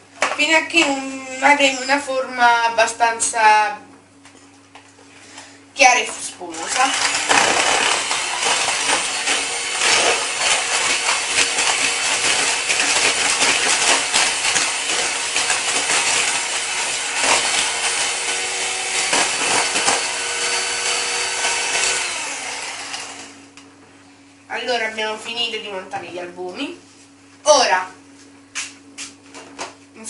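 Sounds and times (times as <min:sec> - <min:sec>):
electric hand mixer running: 0:06.4 - 0:23.5.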